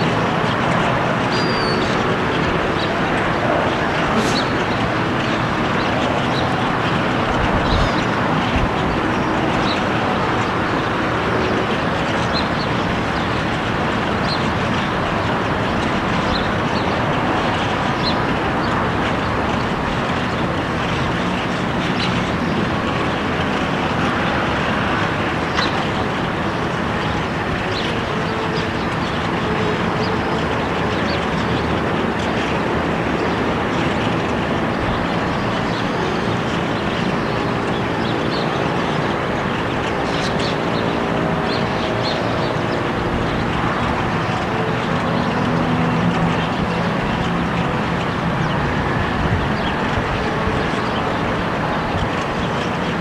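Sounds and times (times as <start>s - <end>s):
outdoor background noise: 0.0s - 53.0s.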